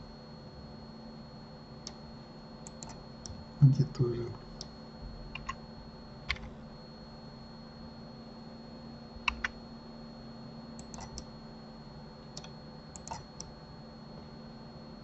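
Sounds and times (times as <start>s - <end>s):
faint steady hum: 0.0s - 15.0s
mouse and keyboard clicks: 5.4s - 5.6s, 9.3s - 9.6s, 10.8s - 11.3s, 12.4s - 13.5s.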